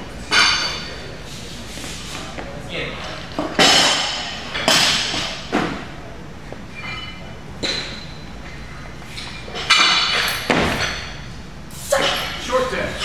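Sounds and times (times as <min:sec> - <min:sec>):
faint metallic ring: 0:06.7 - 0:08.2.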